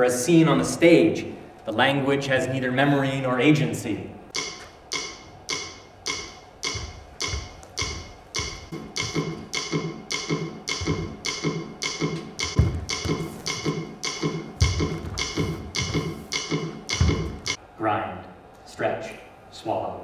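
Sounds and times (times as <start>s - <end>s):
low tones: 4.2s - 17.7s
steady ticking beat: 4.3s - 17.6s
low thuds: 6.8s - 17.6s.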